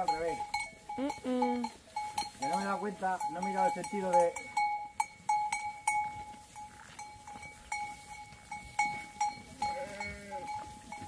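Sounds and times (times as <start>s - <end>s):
sheep bell clanking: 0.0s - 11.0s
sheep bleating: 9.6s - 10.6s.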